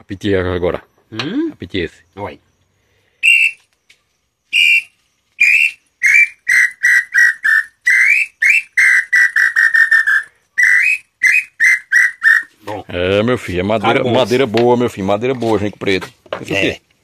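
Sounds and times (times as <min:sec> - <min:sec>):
wooden bird call whistle: 0:03.2 - 0:12.6.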